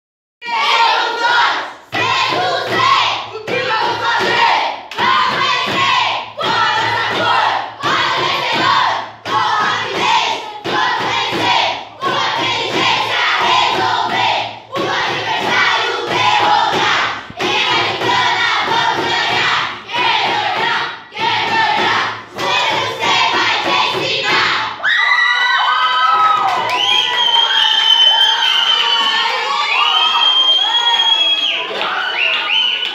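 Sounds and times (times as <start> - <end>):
children chanting in unison: 0.4 - 24.8.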